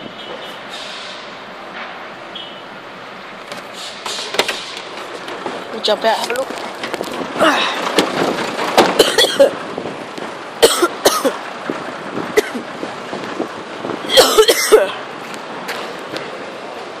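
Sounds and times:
person coughing: 9.0 - 9.5, 10.6 - 11.4, 14.1 - 15.0.

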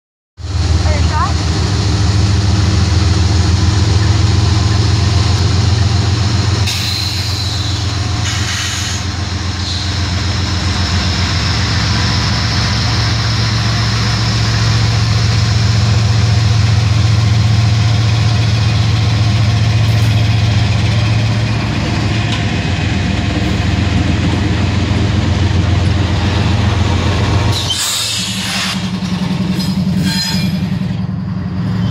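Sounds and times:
diesel locomotive engines droning: 0.4 - 31.9
brief high hiss: 6.7 - 9.1.

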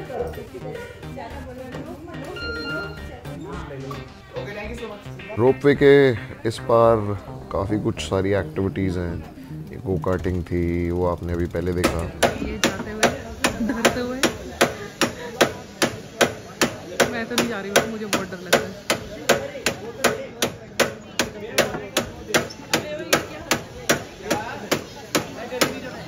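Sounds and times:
faint voices: 0.0 - 26.0
sharp rhythmic knocks: 11.8 - 25.8.

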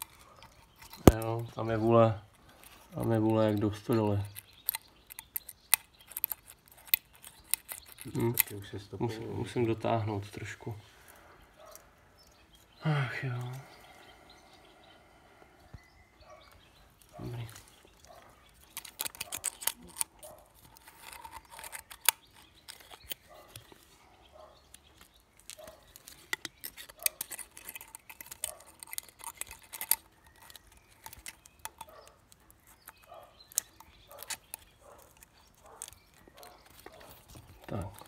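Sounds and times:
small metallic clicks and scrapes: 0.0 - 12.8, 16.4 - 24.0, 24.6 - 38.0.

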